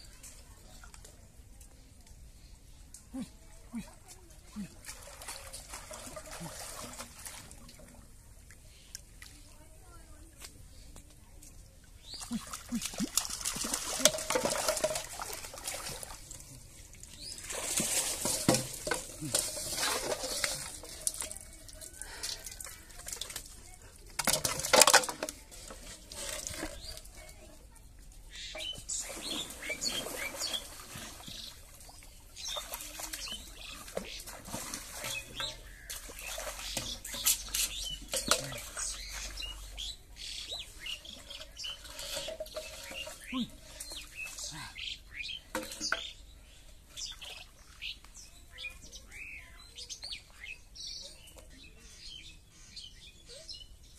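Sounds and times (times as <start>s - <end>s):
water splashing in a pond: 0.0s - 51.8s
water splashing as person wades: 4.5s - 7.8s, 12.2s - 23.6s, 28.9s - 39.8s
birds chirping: 11.8s - 15.0s, 28.2s - 53.9s.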